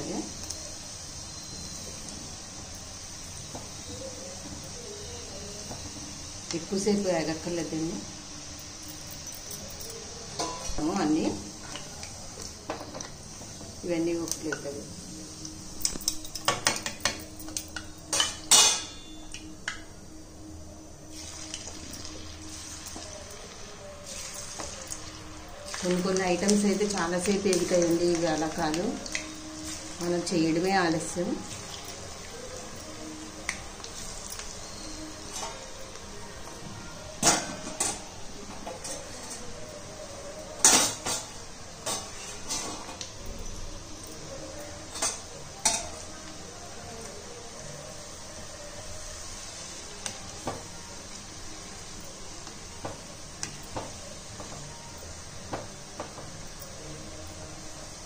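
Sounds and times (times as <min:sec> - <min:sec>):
oil sizzling deep-frying dough: 0:00.0 - 0:58.0
metal ladle clinking on pan: 0:10.4 - 0:10.9, 0:15.8 - 0:19.8.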